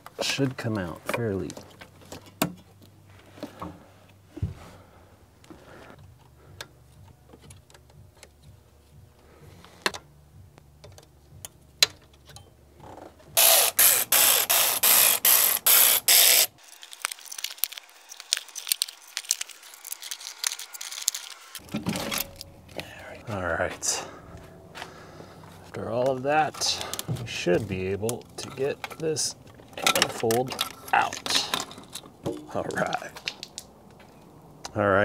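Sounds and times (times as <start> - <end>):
socket ratchet wrench clicking: 13.4 - 16.5.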